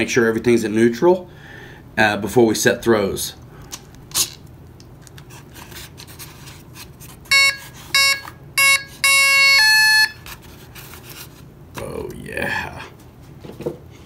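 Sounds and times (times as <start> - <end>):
electronic motor beeps: 7.3 - 10.2.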